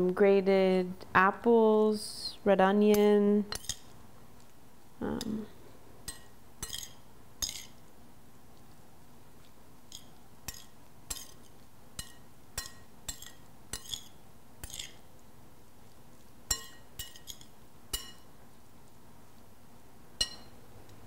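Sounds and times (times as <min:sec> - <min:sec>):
metal spoon clinking on glass bowl: 0:06.1 - 0:07.8, 0:09.9 - 0:15.0, 0:16.5 - 0:18.3, 0:20.2 - 0:20.6.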